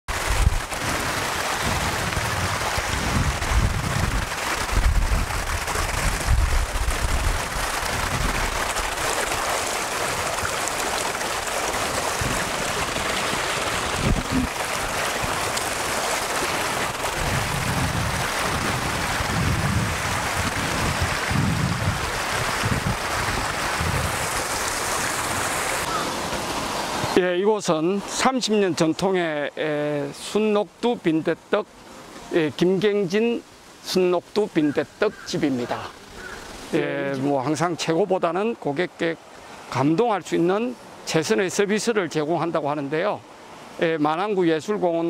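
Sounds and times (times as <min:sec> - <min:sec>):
wind rumble on microphone: 0:00.1 - 0:08.9, 0:11.8 - 0:15.6, 0:16.8 - 0:25.7
stream running over rocks: 0:00.1 - 0:45.0.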